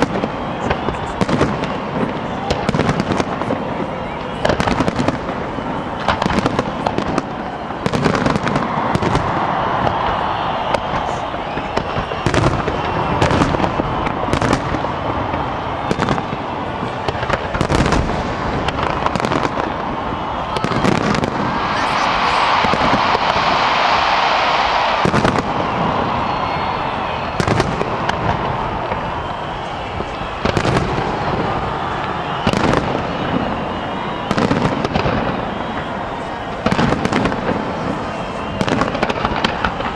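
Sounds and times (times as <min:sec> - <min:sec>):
rapid sharp firework pops: 0:04.2 - 0:21.4, 0:27.0 - 0:35.9, 0:36.5 - 0:39.9.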